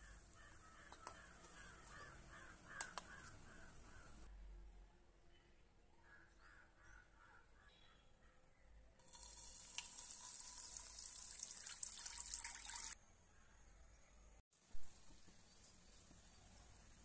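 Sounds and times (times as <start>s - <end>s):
water pouring into a pan: 9.0s - 13.0s.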